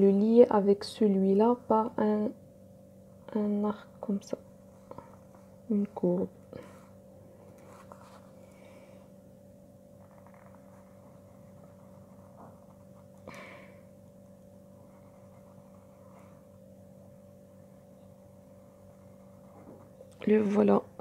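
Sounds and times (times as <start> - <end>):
steady low hum: 0.0 - 21.0
pen scratching on paper: 10.0 - 13.2, 14.7 - 16.6, 18.2 - 20.0.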